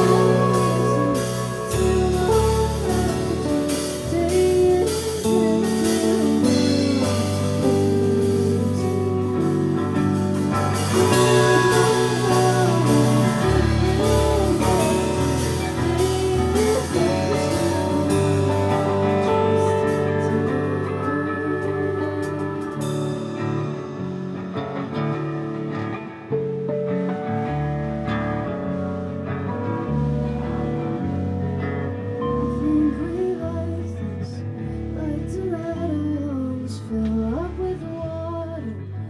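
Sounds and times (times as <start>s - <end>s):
sliding melodic line: 0.0s - 25.5s
live band playing: 0.0s - 33.7s.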